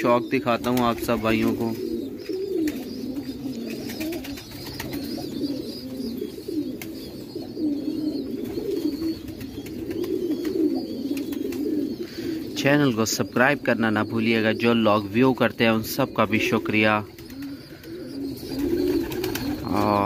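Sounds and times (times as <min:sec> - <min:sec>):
pigeons cooing: 0:00.0 - 0:20.0.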